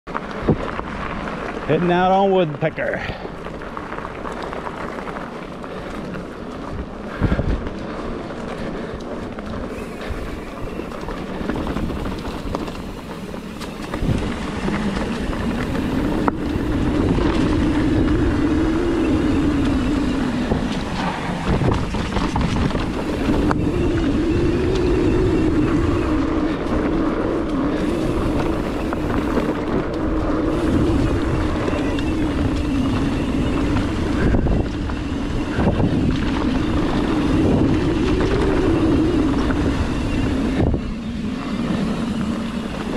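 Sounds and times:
bike tyre and trail noise: 0:00.1 - 0:42.9
wind rush on microphone: 0:00.1 - 0:42.9
wavering hum: 0:09.6 - 0:42.9.

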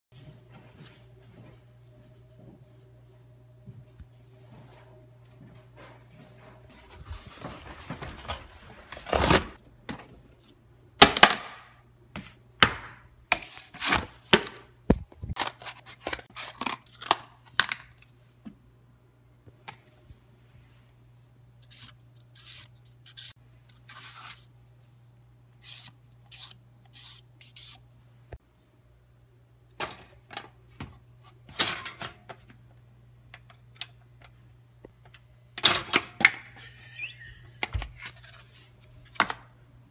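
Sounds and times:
low steady hum: 0:00.2 - 0:11.0.

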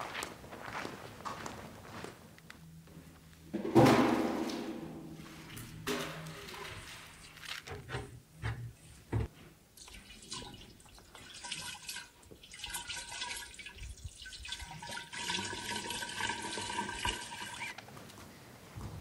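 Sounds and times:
water poured into jar: 0:09.8 - 0:17.8.

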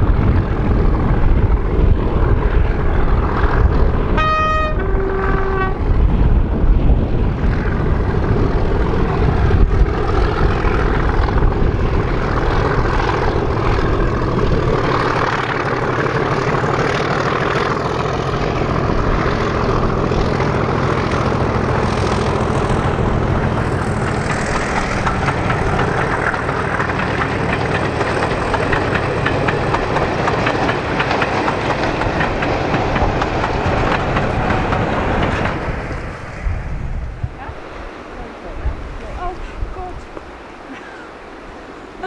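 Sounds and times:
diesel locomotive engine: 0:00.0 - 0:42.0
train wheels clacking over rail joints: 0:08.2 - 0:36.3.

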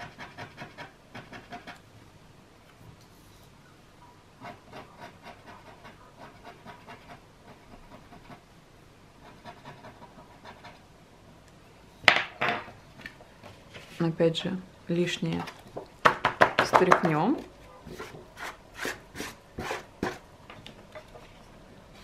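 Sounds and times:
palette knife scraping on paper: 0:17.9 - 0:20.2.

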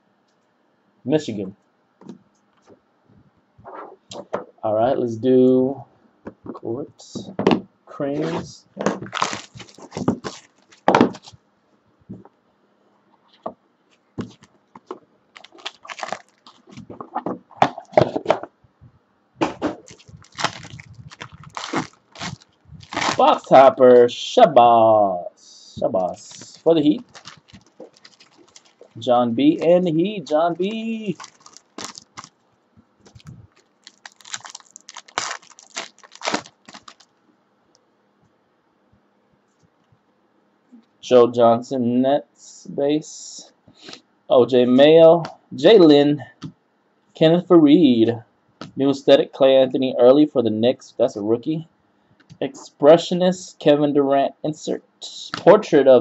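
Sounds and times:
cards being handled: 0:08.2 - 0:11.4, 0:14.2 - 0:18.3, 0:19.4 - 0:23.7, 0:26.0 - 0:32.3
plastic wrap crinkling: 0:08.2 - 0:11.4, 0:14.2 - 0:17.2, 0:19.7 - 0:23.8, 0:26.0 - 0:32.4, 0:33.0 - 0:37.1.

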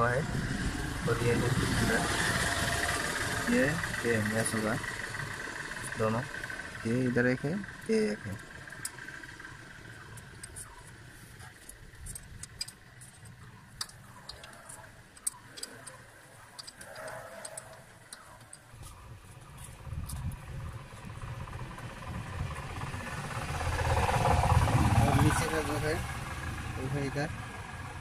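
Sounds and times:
low rumble: 0:18.7 - 0:28.0.

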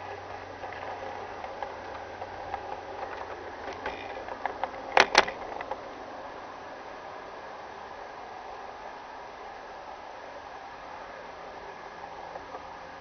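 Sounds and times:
wheels clacking over points: 0:00.0 - 0:05.9
wheel clicks over rail joints: 0:00.0 - 0:06.1, 0:11.6 - 0:13.0
model train motor hum: 0:00.0 - 0:13.0.

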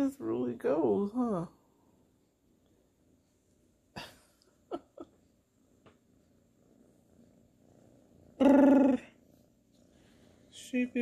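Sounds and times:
kitten purring: 0:00.0 - 0:11.0.

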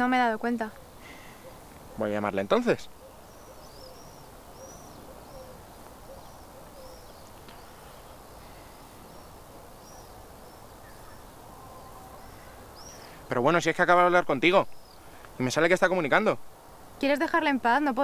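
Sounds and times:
low outdoor background hiss: 0:00.0 - 0:18.0
small bird chirping: 0:00.7 - 0:13.2.

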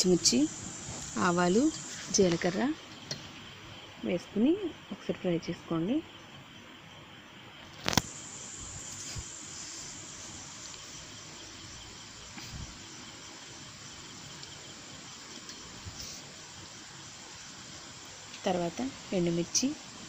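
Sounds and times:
hot oil sizzling: 0:00.0 - 0:03.9, 0:07.6 - 0:20.0
small crackles: 0:07.6 - 0:08.2.

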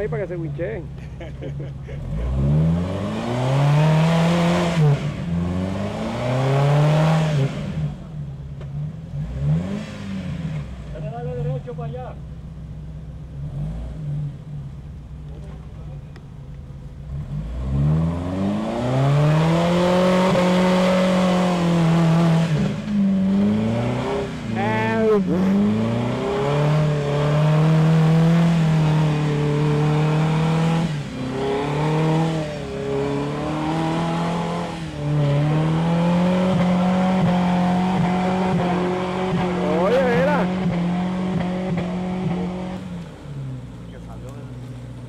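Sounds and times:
engine revving hard in mud: 0:01.9 - 0:08.0, 0:09.1 - 0:10.7, 0:13.4 - 0:14.3, 0:17.1 - 0:42.9.

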